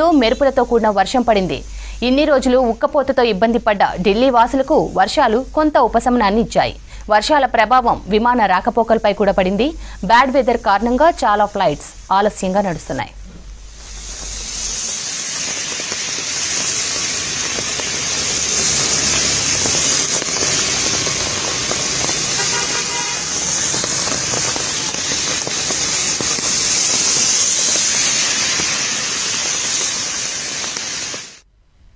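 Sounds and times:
tyres hissing on wet road: 0:00.0 - 0:06.1, 0:09.6 - 0:31.4
heavy rain falling: 0:13.4 - 0:31.4
car horn: 0:22.3 - 0:23.4.

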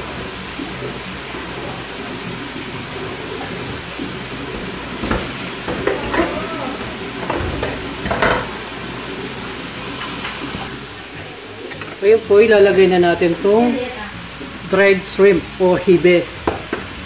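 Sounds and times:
vegetables sizzling in a pan: 0:00.0 - 0:17.0.

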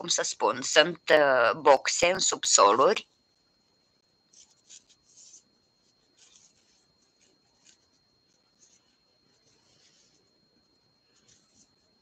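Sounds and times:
crochet hook and yarn rustling: 0:04.3 - 0:10.3, 0:11.0 - 0:11.9.

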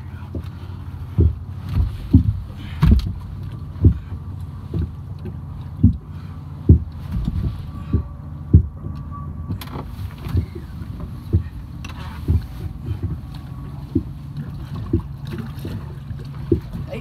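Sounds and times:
steady low rumble: 0:00.0 - 0:17.0
water slapping against boat hull: 0:00.0 - 0:17.0.

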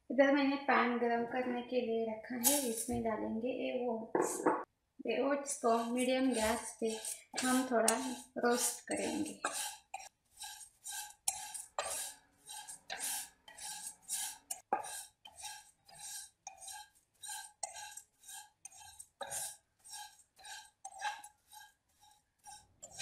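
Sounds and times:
spatula scraping oats in pan: 0:05.6 - 0:23.0.

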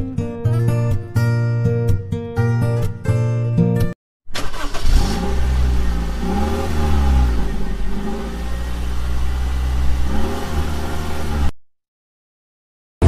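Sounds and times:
starter motor cranking: 0:04.3 - 0:05.8
car engine revving: 0:04.4 - 0:11.6.

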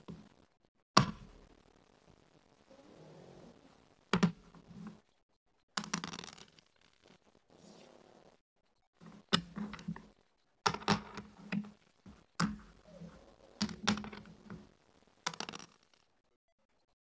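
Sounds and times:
checkers clacking on wooden board: 0:05.8 - 0:06.6, 0:09.0 - 0:10.1, 0:10.7 - 0:14.7, 0:15.3 - 0:16.0
dice rolling on board: 0:05.8 - 0:06.7, 0:10.7 - 0:16.0.

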